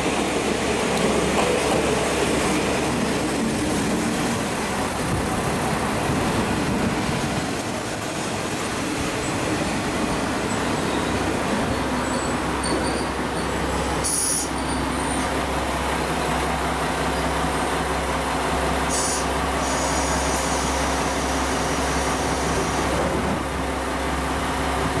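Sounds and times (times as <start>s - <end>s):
diesel railcar engine idling: 0.0s - 25.0s
air hisses: 18.9s - 22.6s.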